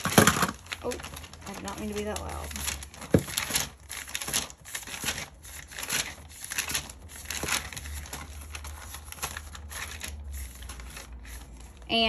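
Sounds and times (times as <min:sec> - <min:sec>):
crinkling and rustling: 0:00.0 - 0:12.0.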